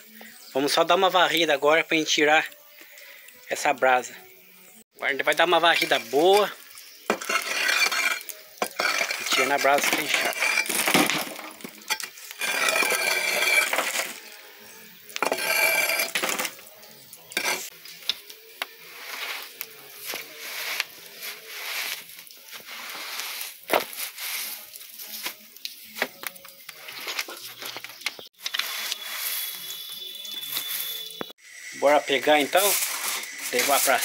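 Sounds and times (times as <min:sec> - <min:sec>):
embers scraped and clattering: 0:05.0 - 0:31.4, 0:32.2 - 0:34.0
broom brushing swishes: 0:18.9 - 0:25.3.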